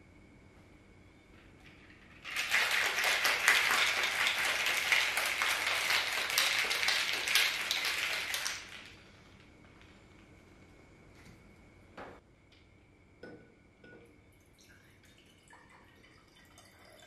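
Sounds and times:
ice rattling in cocktail shaker: 0:01.6 - 0:09.0.

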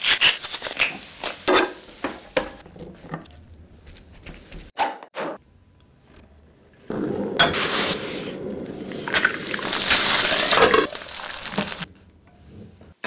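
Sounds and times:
egg sizzling in hot oil: 0:09.0 - 0:11.9.

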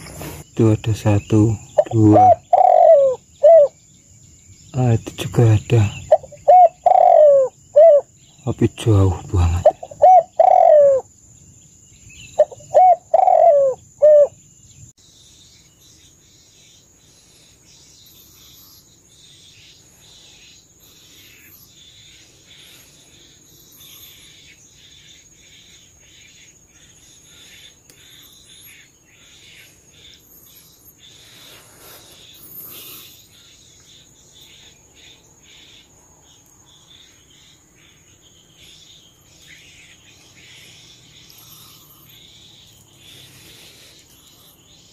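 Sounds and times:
faint bird chirps: 0:00.0 - 0:44.9
high insect drone: 0:00.0 - 0:44.9
dove cooing: 0:01.4 - 0:03.8, 0:05.7 - 0:08.1, 0:09.2 - 0:11.1, 0:12.3 - 0:14.4.

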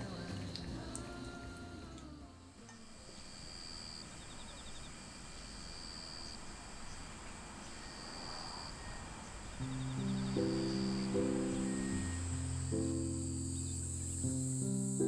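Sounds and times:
soft music with low notes: 0:00.0 - 0:02.8, 0:09.6 - 0:15.0
pulsed insect chirp: 0:07.6 - 0:15.0
insect trilling: 0:09.6 - 0:15.0.

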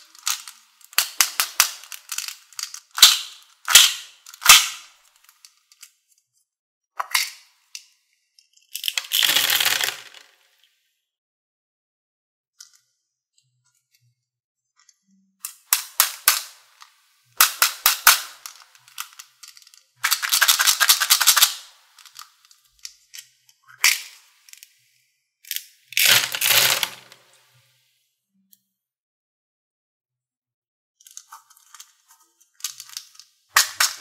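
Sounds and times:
small balls pouring onto plastic tray: 0:08.9 - 0:10.4, 0:26.0 - 0:27.2.

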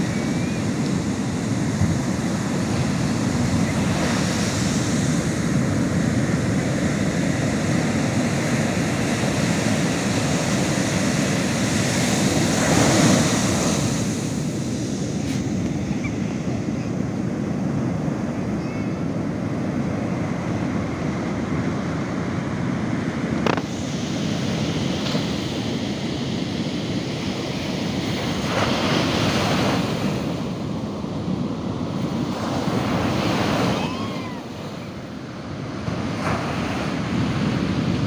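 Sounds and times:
ocean waves breaking on beach: 0:00.0 - 0:38.0.

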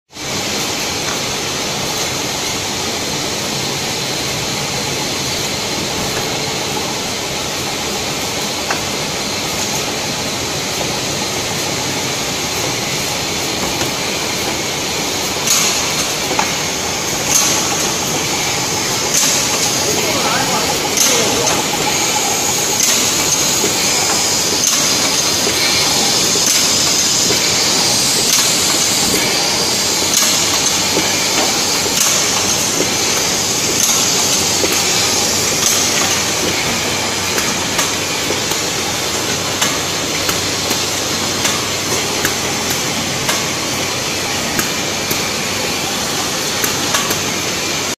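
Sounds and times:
bottling machine clatter: 0:00.3 - 0:48.0
machine knocking: 0:04.8 - 0:47.9.

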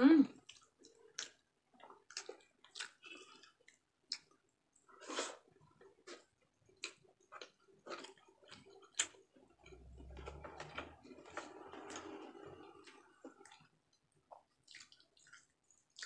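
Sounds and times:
chewing with wet mouth clicks: 0:00.4 - 0:05.0, 0:05.7 - 0:10.7, 0:12.8 - 0:16.0.

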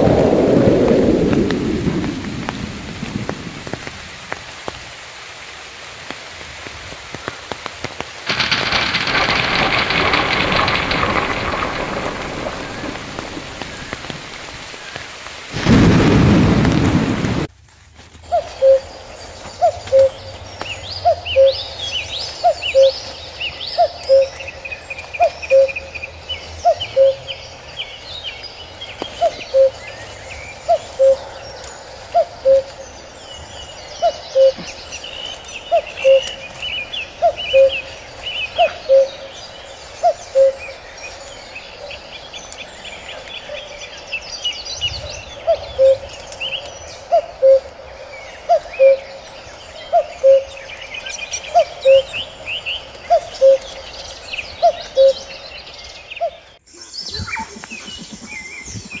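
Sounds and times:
bird chirps and trills: 0:18.3 - 0:59.0.

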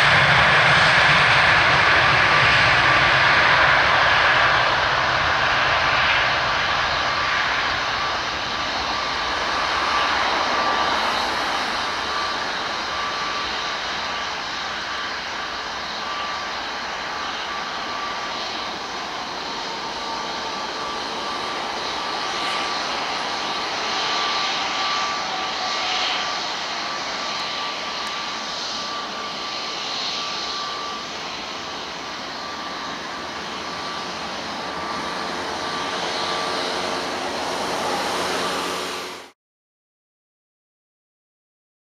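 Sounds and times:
jet engines roaring with whine: 0:00.0 - 0:39.4.

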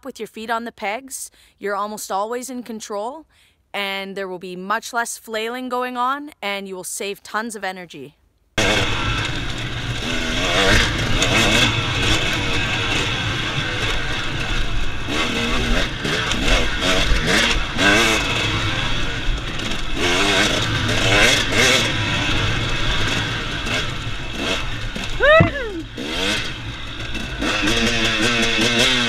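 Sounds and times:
dirt bike engine revving: 0:08.6 - 0:29.0.

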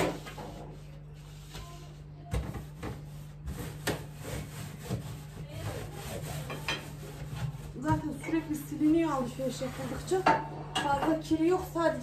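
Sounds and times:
cloth wiping plastic: 0:02.6 - 0:10.2.

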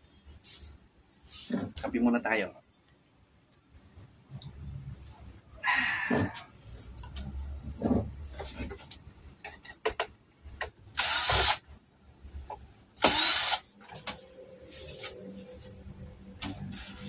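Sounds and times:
cordless drill running: 0:11.0 - 0:11.6, 0:13.0 - 0:13.7.

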